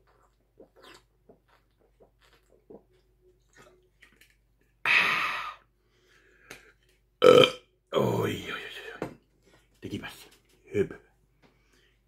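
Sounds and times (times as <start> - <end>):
man gulping and swallowing: 7.2 - 7.6.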